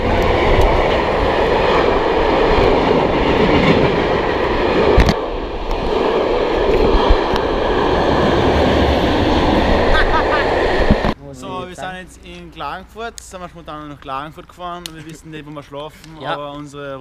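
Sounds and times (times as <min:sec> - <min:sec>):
train passing at speed: 0:00.0 - 0:12.0.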